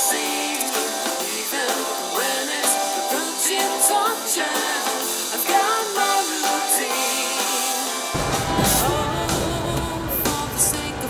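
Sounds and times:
background music with steady beat: 0.0 - 11.0
bass: 8.1 - 11.0.

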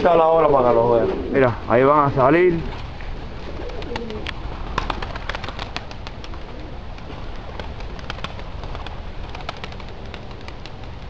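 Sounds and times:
pigeon wings clapping: 3.4 - 11.0.

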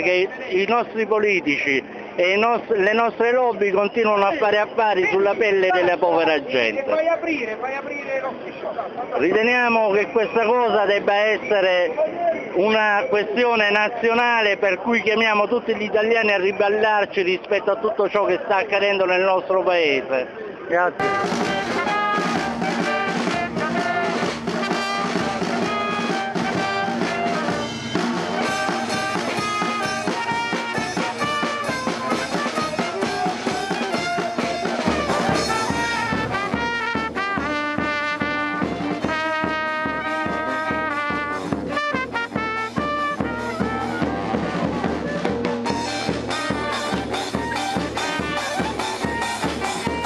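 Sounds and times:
cymbals: 21.0 - 50.0
saxophones: 21.0 - 50.0
snare drum: 21.0 - 50.0
steady low drum beat: 21.0 - 50.0
trumpet: 21.0 - 50.0.

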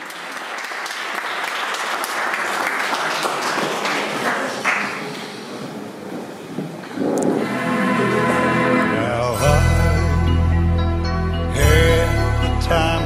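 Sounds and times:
crowd applauding: 0.0 - 5.5.

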